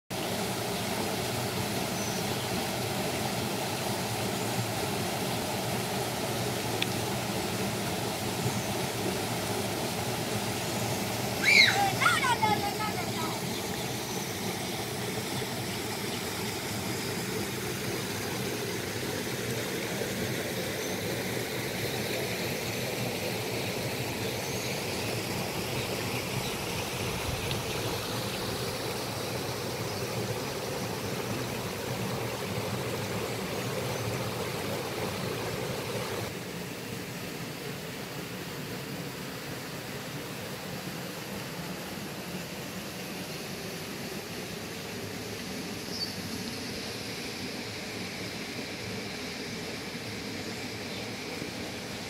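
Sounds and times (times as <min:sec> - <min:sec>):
water rushing over rocks: 0:00.1 - 0:38.3
small waterfall: 0:00.1 - 0:52.0.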